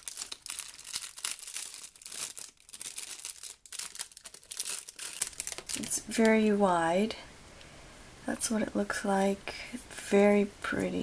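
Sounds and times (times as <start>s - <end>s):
plastic sleeve crinkling: 0.0s - 6.6s.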